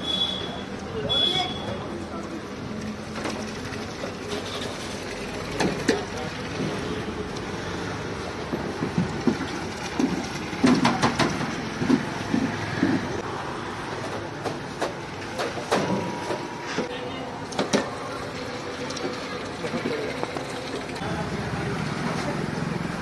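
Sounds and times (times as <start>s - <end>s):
milk pouring and splashing: 2.3s - 12.2s, 17.8s - 21.0s.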